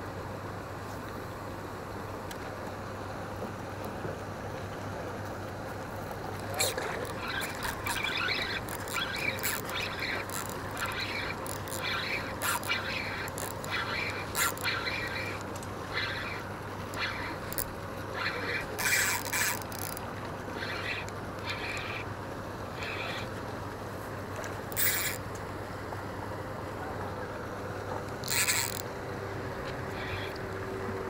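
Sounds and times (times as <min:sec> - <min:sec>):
steady low hum: 0:00.0 - 0:31.0
fishing reel clicks and rattles: 0:06.3 - 0:22.1, 0:24.4 - 0:25.3, 0:28.2 - 0:28.9.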